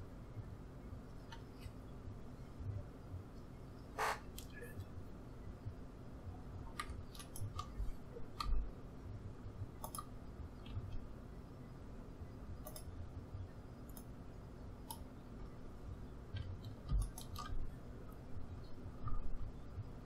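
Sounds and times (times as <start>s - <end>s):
faint low hum: 0.0s - 20.0s
computer mouse and keyboard clicks: 6.7s - 8.6s, 9.8s - 11.0s, 12.6s - 12.9s, 13.9s - 14.1s, 16.3s - 17.8s.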